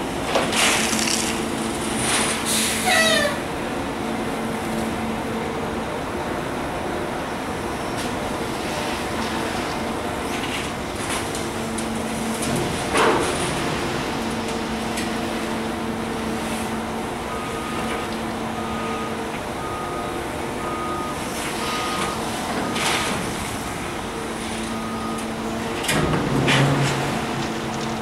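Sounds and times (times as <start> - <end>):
excavator diesel engine running: 0.0 - 28.0
gravel scraping and rattling: 0.3 - 2.6, 25.8 - 28.0.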